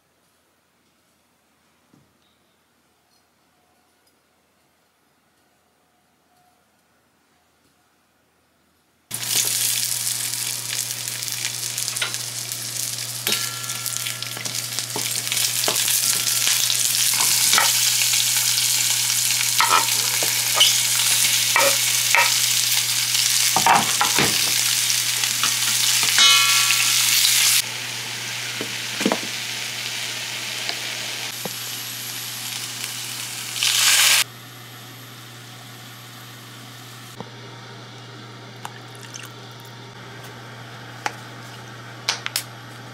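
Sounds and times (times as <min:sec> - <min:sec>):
food sizzling in a frying pan: 0:09.1 - 0:34.3.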